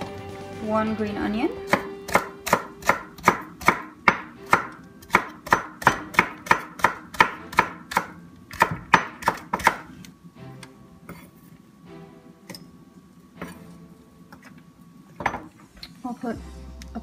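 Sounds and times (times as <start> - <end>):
knife chopping on wooden board: 1.7 - 9.9.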